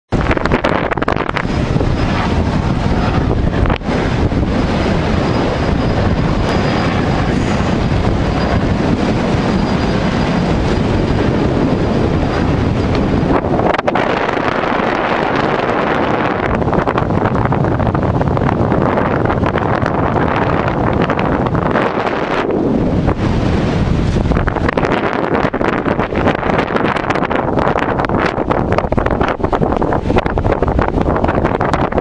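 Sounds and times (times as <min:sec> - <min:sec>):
wind buffeting microphone: 0:00.1 - 0:32.0.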